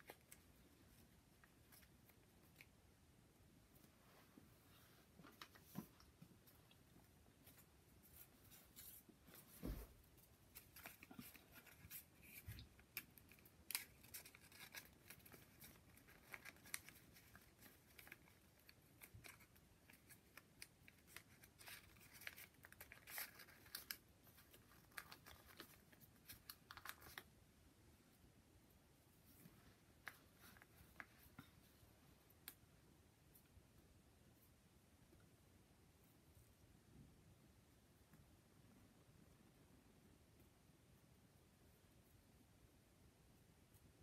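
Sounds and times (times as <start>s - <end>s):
paper rustling and crinkling: 7.4s - 27.3s.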